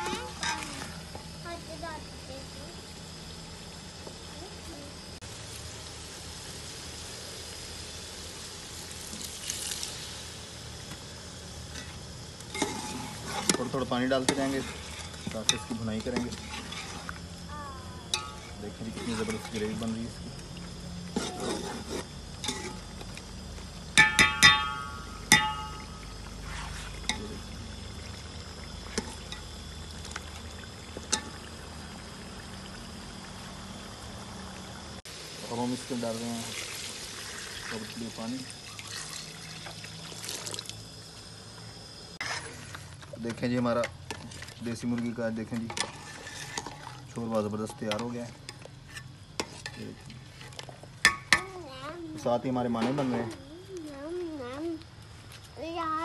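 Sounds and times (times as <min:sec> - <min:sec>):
water hissing in hot pot: 0:00.0 - 0:51.8
meat sizzling in a pot: 0:00.0 - 0:53.4
metal ladle clinking against pot: 0:24.0 - 0:26.0.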